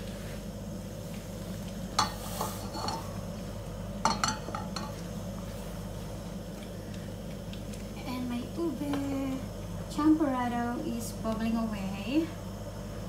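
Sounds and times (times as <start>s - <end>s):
steady low hum: 0.0s - 13.0s
oil crackling and spitting in pan: 1.4s - 3.2s.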